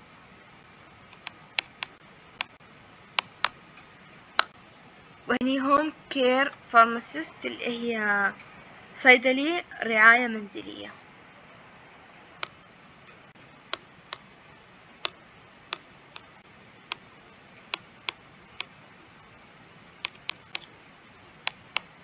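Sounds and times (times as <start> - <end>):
stylus clicking and tapping on screen: 1.0 - 4.6, 12.4 - 14.4, 15.0 - 18.8, 19.9 - 22.0.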